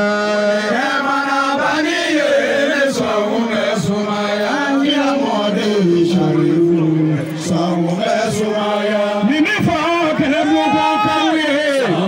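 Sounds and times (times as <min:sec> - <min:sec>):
men chanting through loudspeakers: 0:00.0 - 0:12.0.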